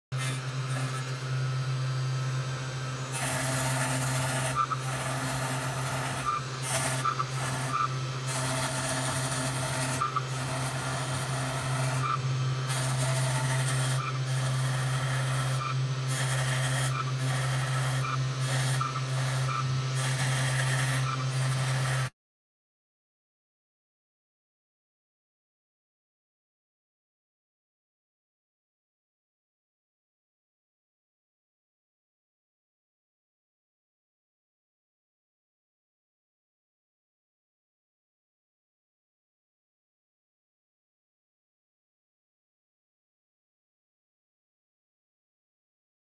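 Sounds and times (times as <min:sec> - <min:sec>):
router bit scraping foam: 0:00.1 - 0:22.1
low motor hum: 0:00.2 - 0:22.1.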